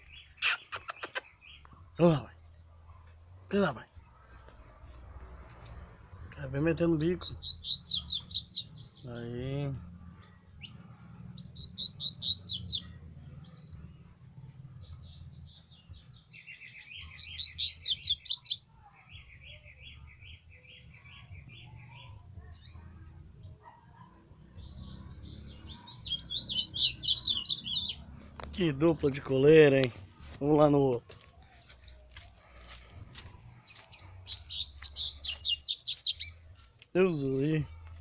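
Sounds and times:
birds singing whistled notes: 0.0s - 1.8s, 5.9s - 9.2s, 9.8s - 28.4s, 31.5s - 36.5s
lower repeated bird notes: 5.9s - 9.1s, 9.7s - 18.6s, 24.6s - 28.4s, 33.1s - 36.4s.

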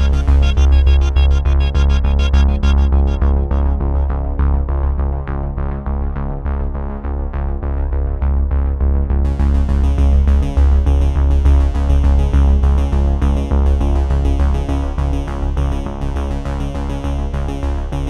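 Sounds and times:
electronic synthesizer music: 0.0s - 4.7s.

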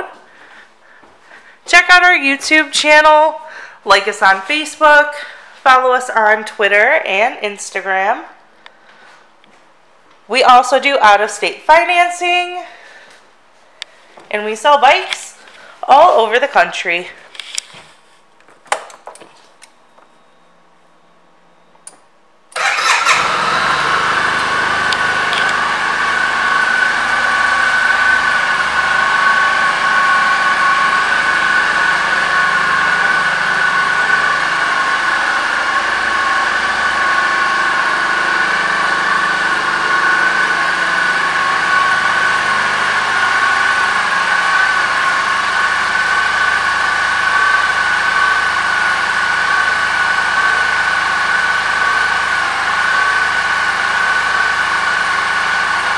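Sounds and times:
scooter engine starting and idling: 22.5s - 55.9s.

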